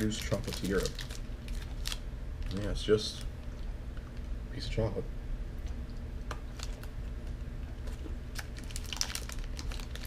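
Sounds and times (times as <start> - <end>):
wrapper crinkling: 0.0 - 3.6, 6.5 - 6.9, 7.9 - 10.0
low steady hum: 0.0 - 10.0.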